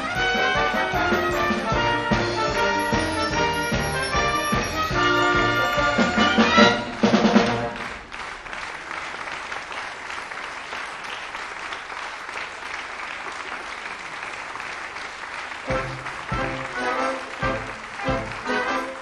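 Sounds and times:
music playing: 0.0s - 7.9s, 15.7s - 19.0s
theatre audience applauding: 0.0s - 19.0s.

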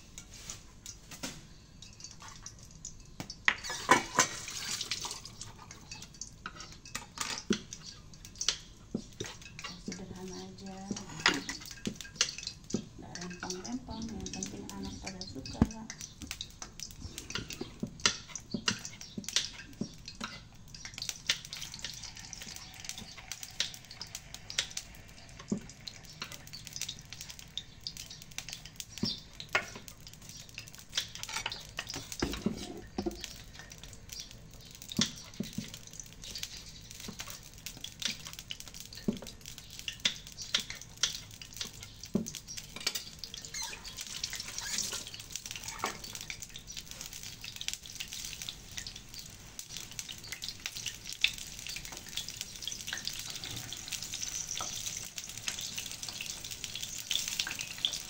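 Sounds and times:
utensils clinking on dishes: 3.5s - 8.6s.

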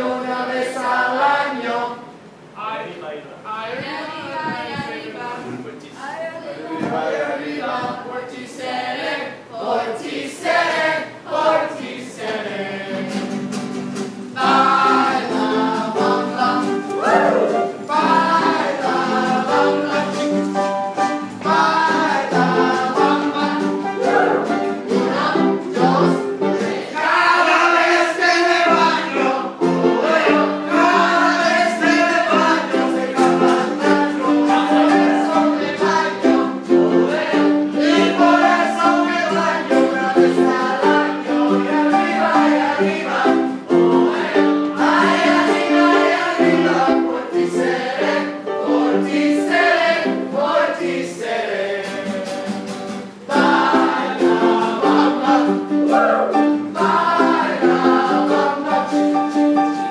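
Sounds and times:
group of voices singing: 0.0s - 2.3s, 6.4s - 13.7s, 14.3s - 59.9s.

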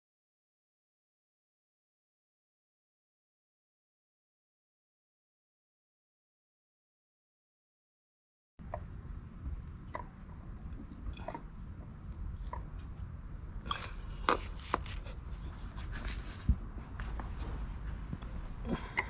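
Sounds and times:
low steady rumble: 8.6s - 19.0s.

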